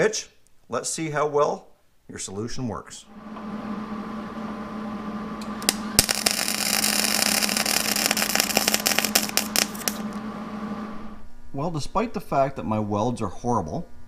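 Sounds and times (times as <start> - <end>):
steady low hum: 4.7 - 14.0
welder arc crackling: 5.4 - 10.3.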